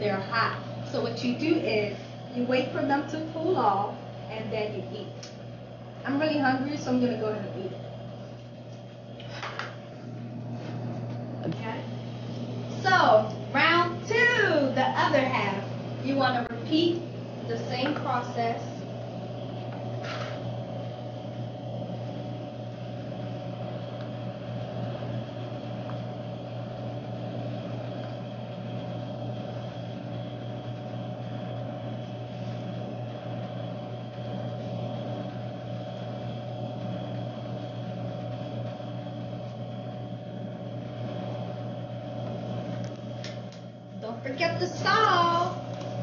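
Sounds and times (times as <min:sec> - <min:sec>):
appliance motor hum: 0:00.0 - 0:46.0.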